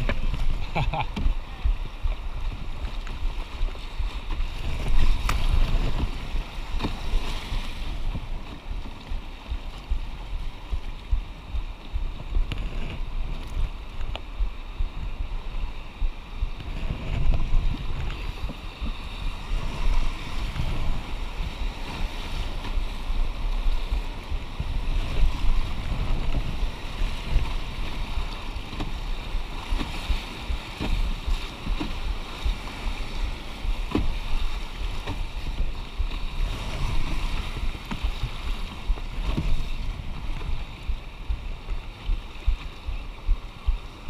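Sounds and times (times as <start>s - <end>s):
wind rumbling on microphone: 0.0s - 44.0s
sharp knocks on canoe: 33.8s - 34.3s, 34.9s - 35.3s.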